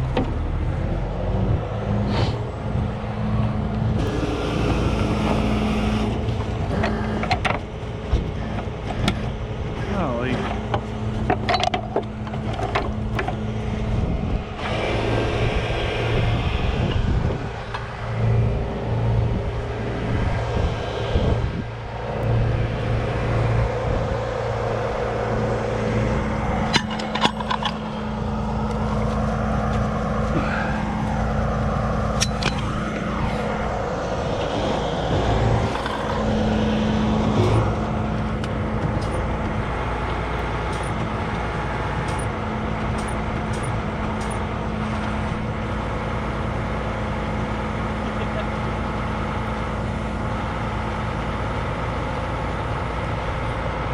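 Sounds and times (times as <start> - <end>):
diesel engine running: 0.0 - 53.9
metallic clanks of chain: 26.7 - 28.0.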